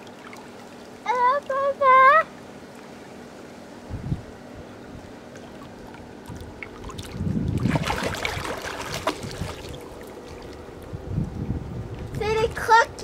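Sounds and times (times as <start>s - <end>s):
water splashing in a pool: 0.0s - 3.4s, 5.1s - 11.0s.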